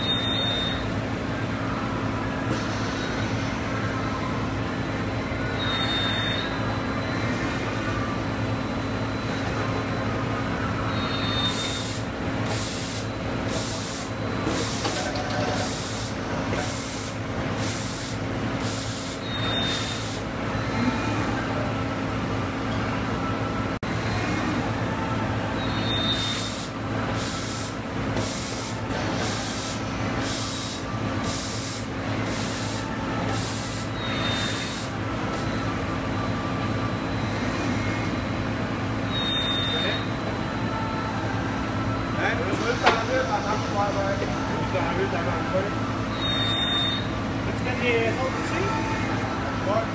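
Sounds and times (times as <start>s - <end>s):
punch press machine hum: 0.0s - 47.6s
compressed-air hisses: 11.5s - 14.9s, 15.6s - 20.3s, 26.2s - 35.0s.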